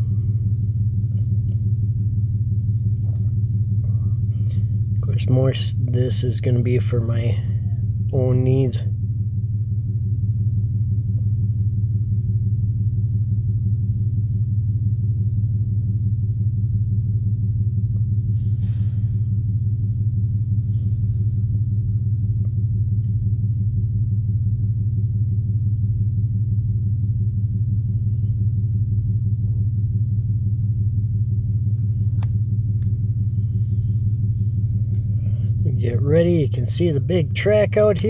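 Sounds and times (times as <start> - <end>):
low humming drone: 0.0 - 38.0
soft hisses: 18.3 - 19.3.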